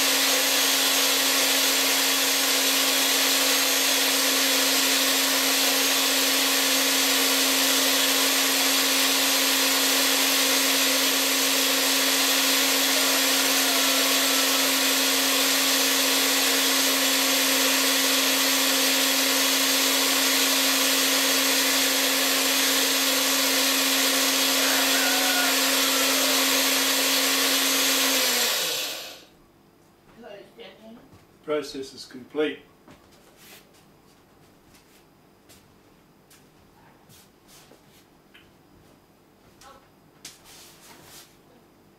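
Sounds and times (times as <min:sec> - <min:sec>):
blender grinding grain: 0:00.0 - 0:29.3.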